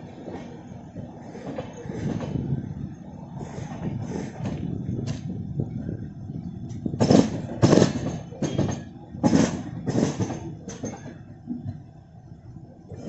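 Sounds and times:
train wheels clickety-clack: 0.0s - 2.6s, 3.3s - 5.4s, 6.6s - 12.0s
train rumble: 0.0s - 13.0s.

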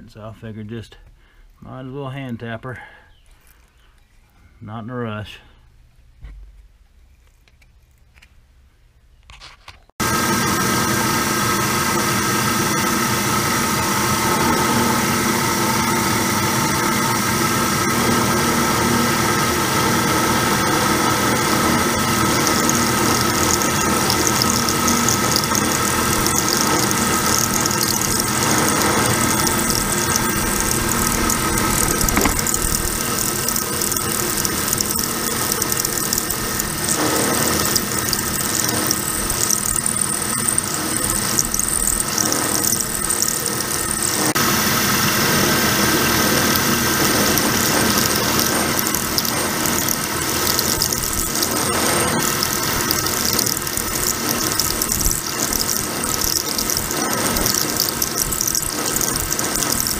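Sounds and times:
milling machine hum: 10.0s - 59.9s
high-pitched cutting squeal: 12.2s - 59.9s.

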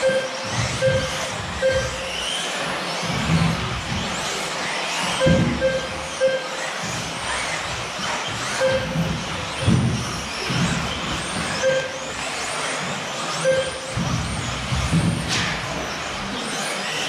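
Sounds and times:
short beep: 0.0s - 2.2s, 5.2s - 6.6s, 8.6s - 9.0s, 11.6s - 12.0s, 13.4s - 13.9s
rc car motors whining: 0.0s - 17.0s.

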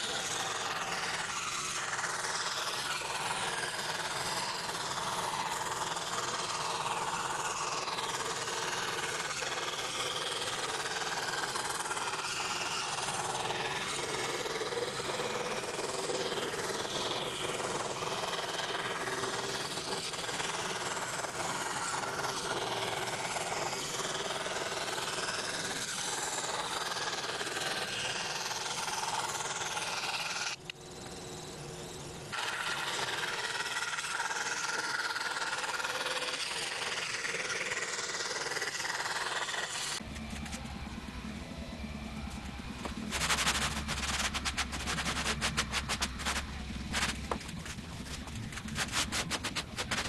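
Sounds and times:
scroll saw cutting plywood: 0.0s - 31.2s, 31.8s - 50.0s
low hum: 35.0s - 50.0s
rapid clicking: 42.3s - 50.0s.

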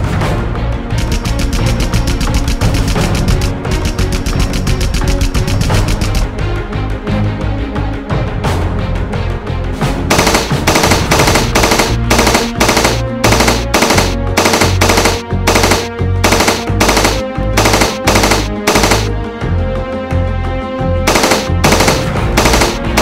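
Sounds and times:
dramatic background music: 0.0s - 23.0s
machine-gun fire: 10.1s - 19.1s, 21.1s - 23.0s.

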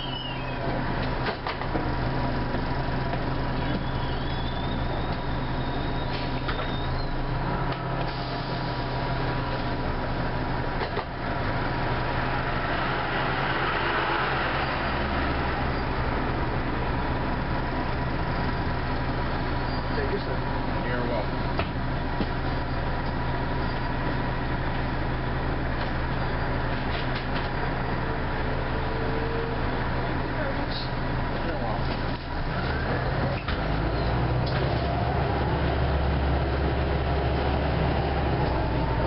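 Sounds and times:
bus diesel engine running: 0.0s - 39.0s.

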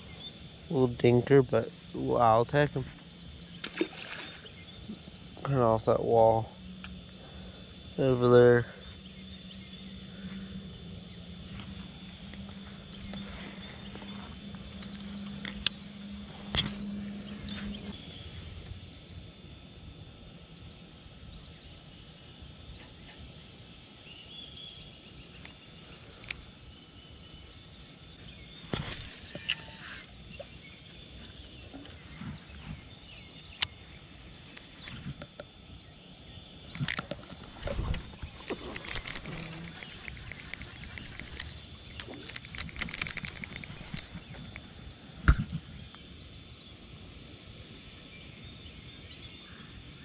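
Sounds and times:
birds chirping: 0.0s - 50.0s
fishing reel clicks and knocks: 38.4s - 44.3s.

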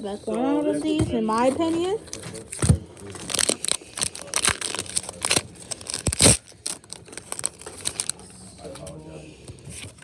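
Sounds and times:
cards rustling: 1.4s - 9.0s
foil wrapper crinkling and tearing: 3.0s - 9.0s.

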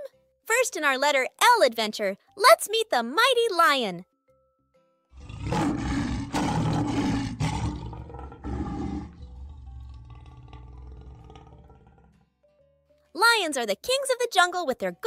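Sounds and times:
lion roaring: 5.1s - 12.2s.

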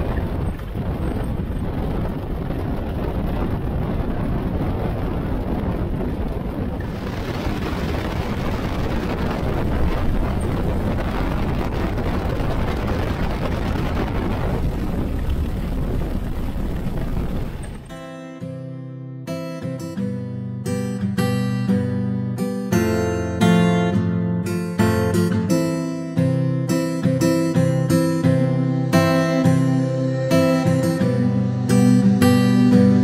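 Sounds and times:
biplane engine running: 0.0s - 17.9s
wind noise on microphone: 0.0s - 18.0s.

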